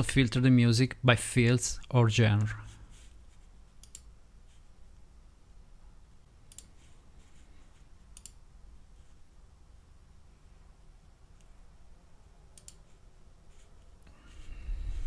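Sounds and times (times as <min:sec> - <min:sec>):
computer mouse clicks: 0:03.8 - 0:04.1, 0:06.5 - 0:06.9, 0:08.1 - 0:08.4, 0:12.6 - 0:12.9
low hum: 0:14.0 - 0:15.0.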